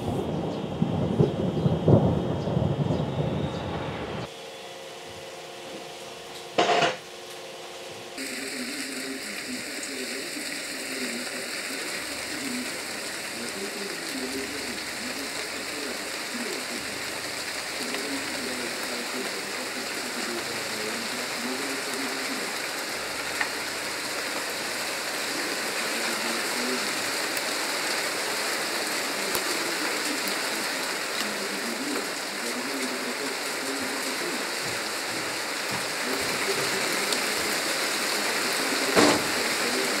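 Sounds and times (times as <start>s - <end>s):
rain falling on asphalt and grass: 8.2s - 40.0s
short thump: 39.0s - 39.3s.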